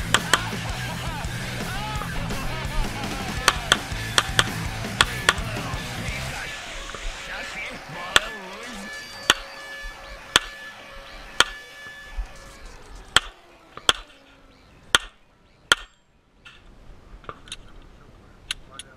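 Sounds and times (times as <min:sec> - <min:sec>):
rock music: 0:00.0 - 0:11.5.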